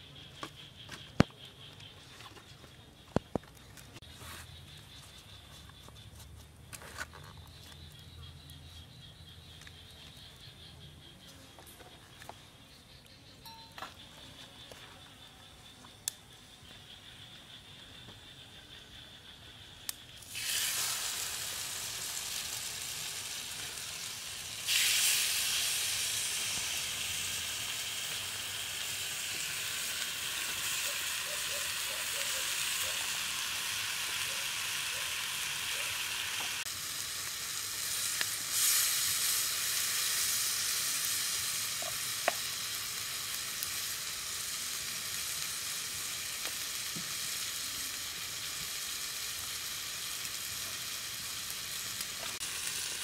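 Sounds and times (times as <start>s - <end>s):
chicken sizzling on hot stone: 18.8s - 53.0s
small pops: 41.8s - 42.6s.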